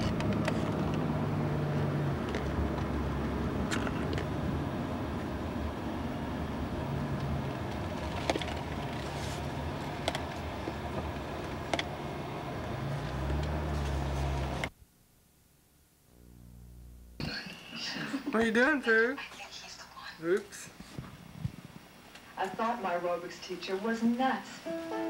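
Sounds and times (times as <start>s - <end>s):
engine and road noise rumble: 0.0s - 14.7s.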